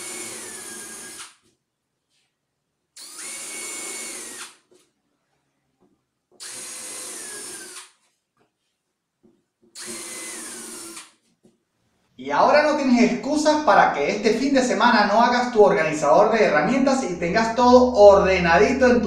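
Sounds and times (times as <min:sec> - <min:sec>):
cordless drill boring holes: 0:00.0 - 0:01.4, 0:03.0 - 0:04.7, 0:06.4 - 0:08.0, 0:09.8 - 0:11.2.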